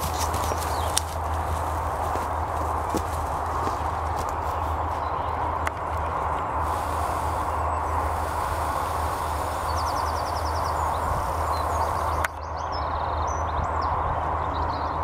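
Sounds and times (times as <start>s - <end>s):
bird trilling: 0.0s - 5.6s, 6.6s - 13.2s
wind on microphone: 0.0s - 15.0s
faint bird chirps: 6.8s - 15.0s.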